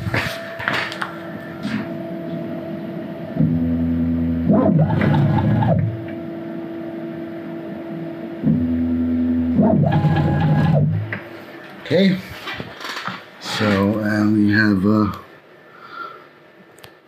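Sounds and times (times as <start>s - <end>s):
stepper motors whining: 8.3s - 11.2s.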